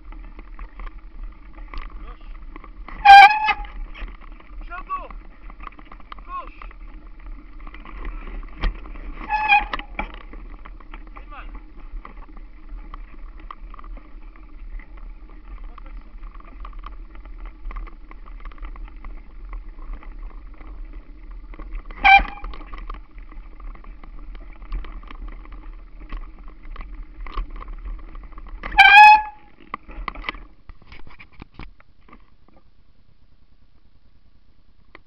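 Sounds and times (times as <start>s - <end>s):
bike tyres and frame rattling: 0.0s - 32.7s
bike brakes squealing: 3.0s - 3.8s, 9.2s - 9.9s, 22.0s - 22.5s, 28.7s - 29.5s.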